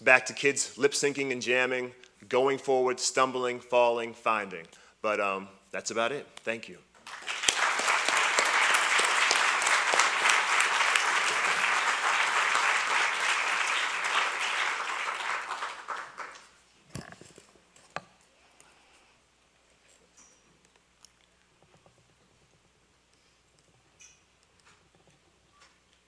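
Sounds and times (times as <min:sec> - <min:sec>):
audience applauding: 0:07.0 - 0:16.6.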